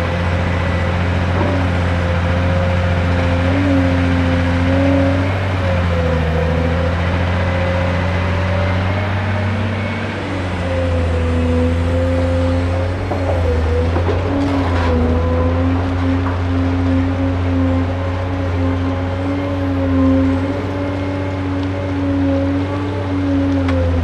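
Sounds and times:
excavator diesel engine droning: 0.0 - 24.0.

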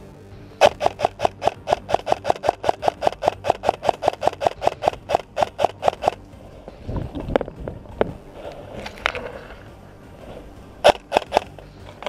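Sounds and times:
airsoft rifle firing: 0.6 - 6.2, 10.8 - 11.6.

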